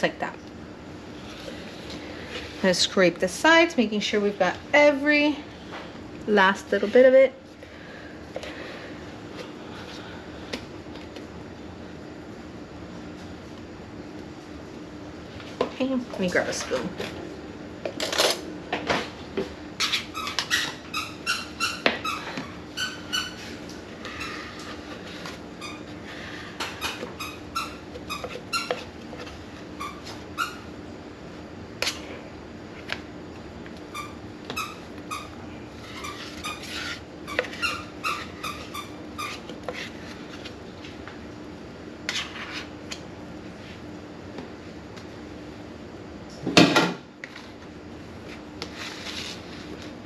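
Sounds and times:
steady low hum: 0:00.0 - 0:50.0
spoon scraping ice cream: 0:26.6 - 0:30.6, 0:34.0 - 0:41.0, 0:42.0 - 0:42.9.

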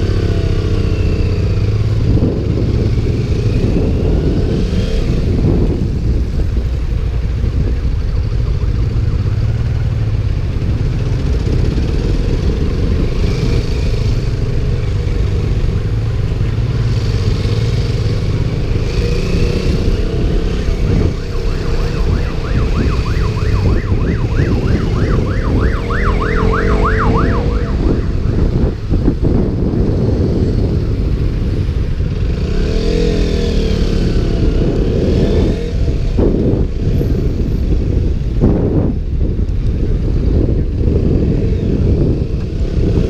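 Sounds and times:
motorcycle engine accelerating: 0:00.0 - 0:38.7
wind buffeting microphone: 0:00.0 - 0:43.0
fast yelping siren: 0:20.4 - 0:29.0.

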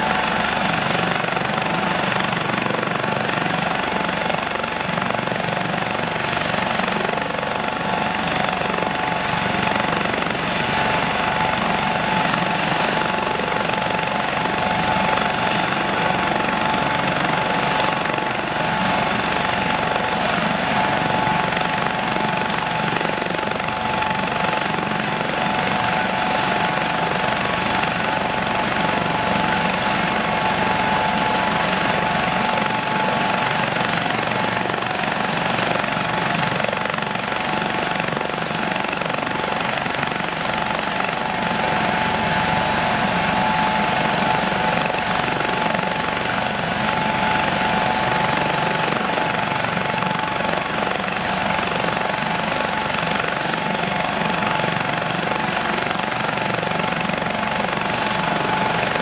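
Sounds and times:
helicopter rotor and engine: 0:00.0 - 0:59.0.

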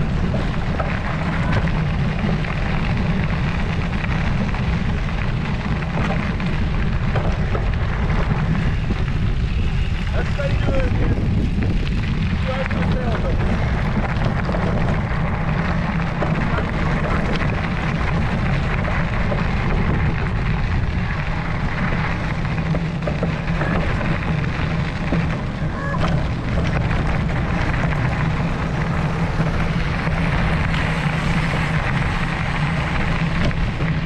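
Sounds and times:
wind buffeting microphone: 0:00.0 - 0:34.0.

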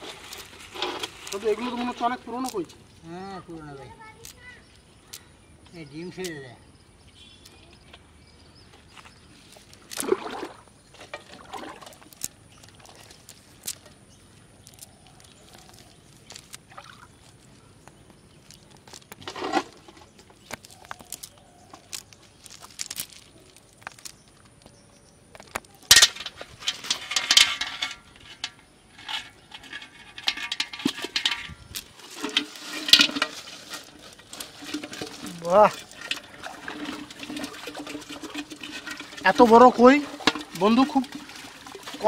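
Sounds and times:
fishing net rustling: 0:00.0 - 0:03.0, 0:08.9 - 0:24.5, 0:25.8 - 0:42.0
stones clicking and clinking: 0:11.9 - 0:24.7, 0:29.1 - 0:41.2.

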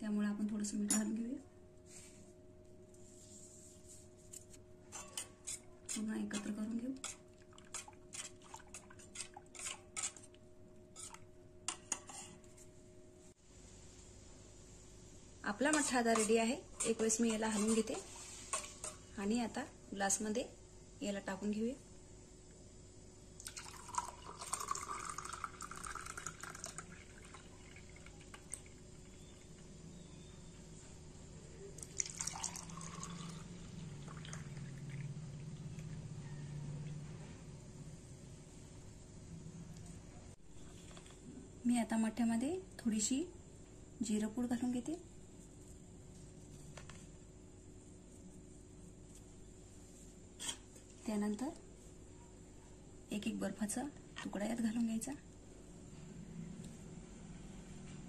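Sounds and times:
liquid pouring into a glass: 0:23.4 - 0:28.8, 0:31.8 - 0:35.2.

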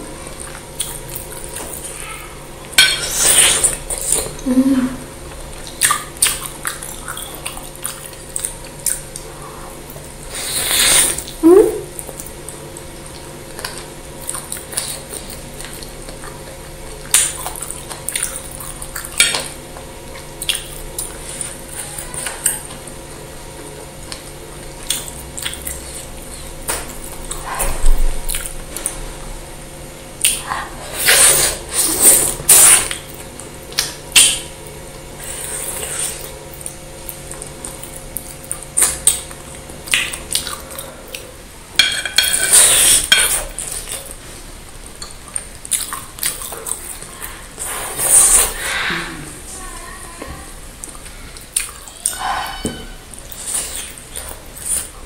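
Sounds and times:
close eating sounds: 0:00.0 - 0:55.0
cutlery clinking on a plate: 0:02.8 - 0:03.2.

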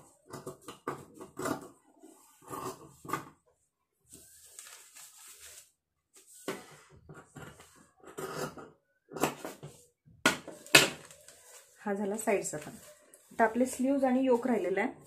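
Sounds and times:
paper rustling on a table: 0:04.1 - 0:07.8, 0:10.5 - 0:13.6.

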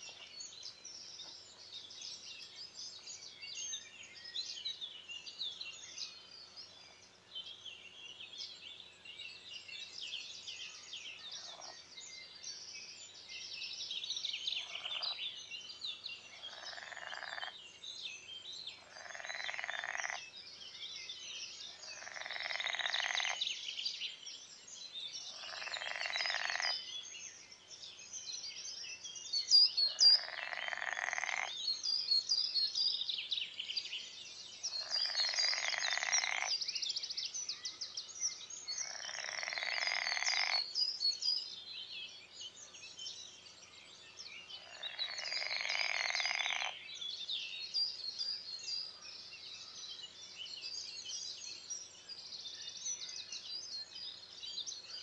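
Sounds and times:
birds chirping: 0:00.0 - 0:55.0
frog calling: 0:16.4 - 0:17.5, 0:18.8 - 0:20.2, 0:21.8 - 0:23.4, 0:25.3 - 0:26.7, 0:29.9 - 0:31.5, 0:34.8 - 0:36.5, 0:38.8 - 0:40.7, 0:44.6 - 0:46.8.

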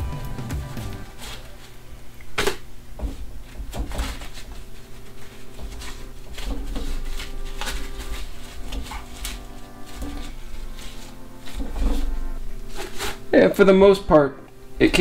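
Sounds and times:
low steady hum: 0:00.0 - 0:15.0
corn husk tearing and rustling: 0:04.0 - 0:13.2.

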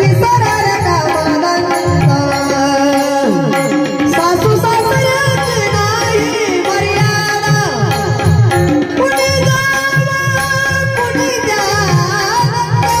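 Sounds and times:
tabla playing steady rhythm: 0:00.0 - 0:13.0.

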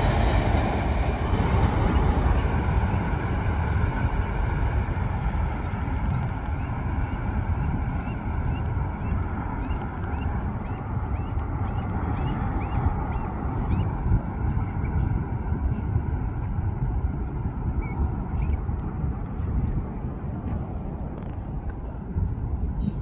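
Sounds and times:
train wheels rumbling on rail: 0:00.0 - 0:10.6.

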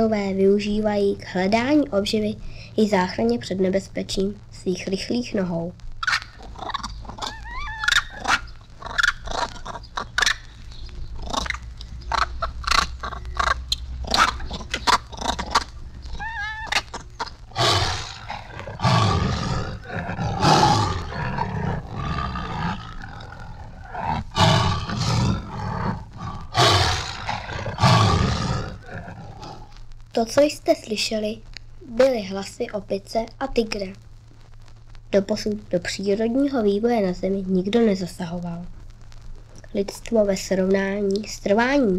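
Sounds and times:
monkey shrill cries: 0:06.0 - 0:10.5, 0:16.1 - 0:17.0
tiger roaring: 0:11.1 - 0:29.8.

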